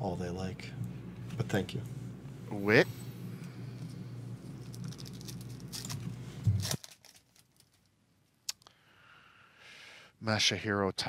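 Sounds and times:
low electrical hum: 0:00.0 - 0:11.0
cards rustling: 0:04.6 - 0:07.9.

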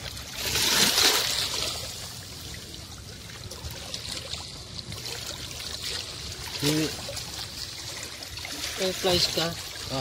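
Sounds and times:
water washing among rocks: 0:00.0 - 0:02.2.

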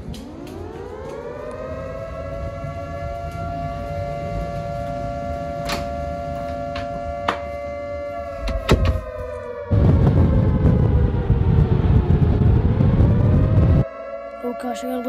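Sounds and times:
warning siren wailing: 0:00.0 - 0:15.0.

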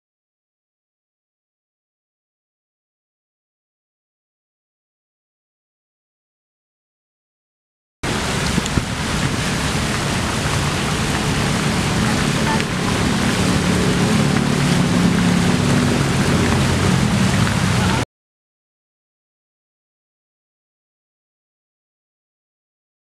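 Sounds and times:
fountain water splashing: 0:08.0 - 0:18.0.

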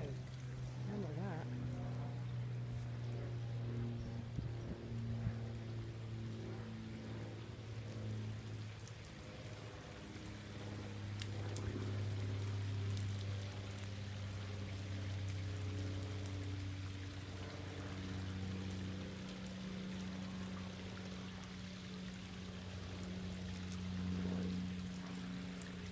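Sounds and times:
steady low hum: 0:00.0 - 0:25.9
water dripping down rain chains: 0:00.0 - 0:25.9
rain falling: 0:08.0 - 0:25.9.

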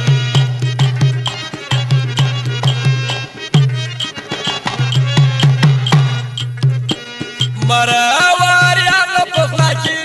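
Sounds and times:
melodic instrument line: 0:00.0 - 0:07.9
tabla beat: 0:00.0 - 0:10.0.

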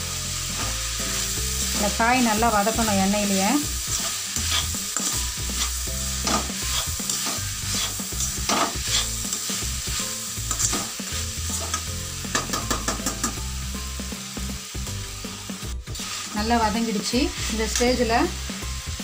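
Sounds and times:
vegetables sizzling in hot oil: 0:00.0 - 0:19.0
metal spatula scraping pan: 0:03.8 - 0:11.9.

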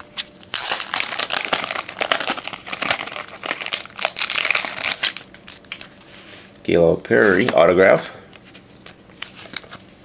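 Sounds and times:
card wrapping crinkling: 0:00.0 - 0:06.0, 0:08.4 - 0:10.0.

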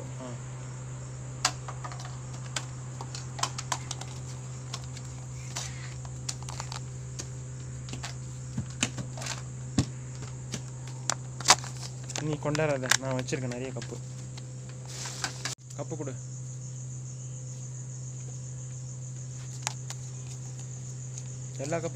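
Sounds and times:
steady low hum: 0:00.0 - 0:21.9
plastic cups clicking: 0:01.5 - 0:09.4, 0:10.2 - 0:14.4.

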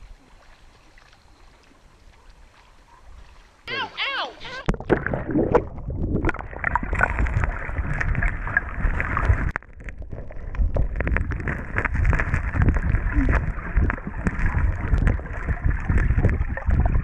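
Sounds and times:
small underwater clicks and knocks: 0:04.6 - 0:17.0
underwater stream rushing and bubbling: 0:04.6 - 0:17.0.

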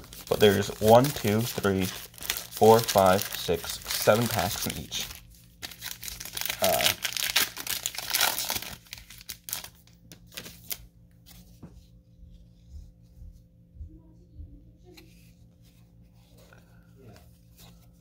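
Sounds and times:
cards clicking and rustling: 0:00.0 - 0:10.8
wrapper tearing and crinkling: 0:00.0 - 0:10.8.

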